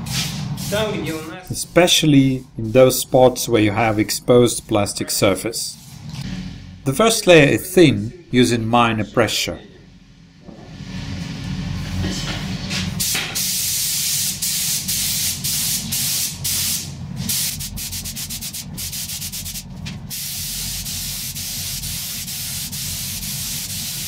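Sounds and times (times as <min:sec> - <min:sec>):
spray gun hissing: 0:00.0 - 0:01.8, 0:13.0 - 0:24.0.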